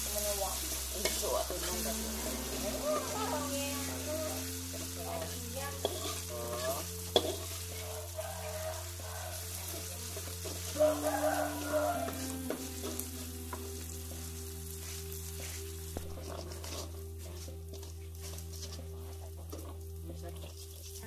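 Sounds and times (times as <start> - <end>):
spatula scraping wok: 0.0 - 19.8, 20.4 - 21.0
food sizzling in hot oil: 0.0 - 21.0.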